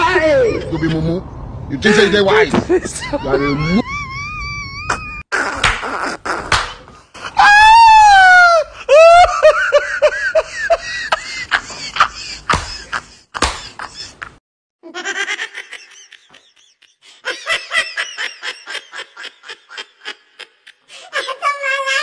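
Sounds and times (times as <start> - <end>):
high-pitched laughter: 2.7 - 6.6, 8.9 - 22.0.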